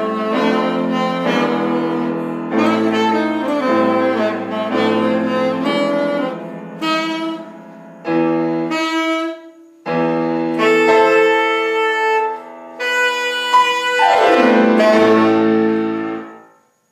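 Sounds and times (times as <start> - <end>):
saxophone playing jazzy melody: 0.0 - 16.4
piano accompaniment: 0.0 - 16.9.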